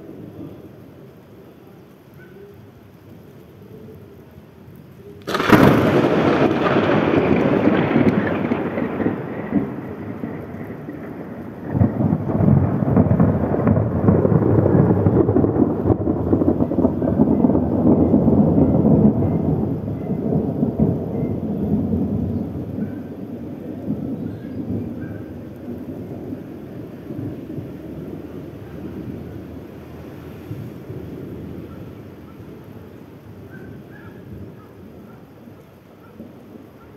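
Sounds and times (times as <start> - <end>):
rain falling: 0.0 - 36.9
thunder crack and rumble: 5.2 - 31.8.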